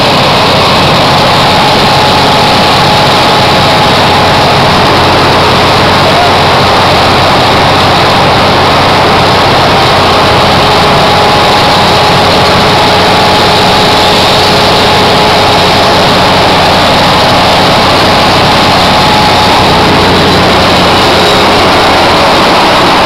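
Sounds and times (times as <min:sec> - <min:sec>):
asphalt milling machine din: 0:00.0 - 0:23.0.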